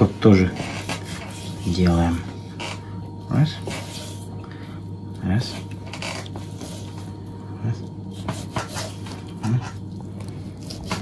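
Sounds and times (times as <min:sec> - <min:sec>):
steady low hum: 0:00.0 - 0:11.0
knife scoring rind on wooden board: 0:08.2 - 0:09.8.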